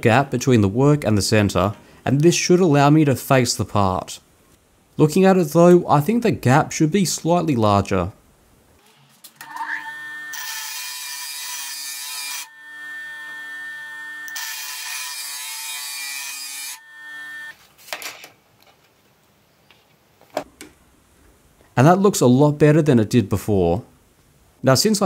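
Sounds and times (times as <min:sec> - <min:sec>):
bench grinder motor whine: 0:09.4 - 0:11.4, 0:12.1 - 0:15.3, 0:16.2 - 0:17.5.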